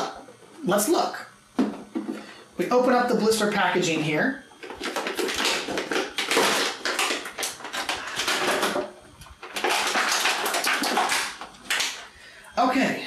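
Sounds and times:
plastic packaging crinkling: 4.6s - 12.2s.

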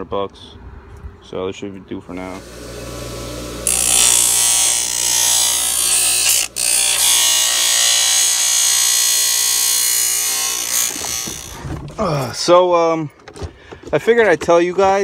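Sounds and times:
grinder motor hum: 2.2s - 11.7s
bench grinder grinding plastic: 2.3s - 12.0s.

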